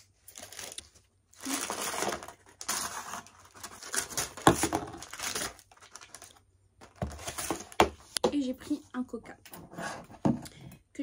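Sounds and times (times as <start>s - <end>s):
paper bag rustling and crinkling: 0.0s - 7.8s.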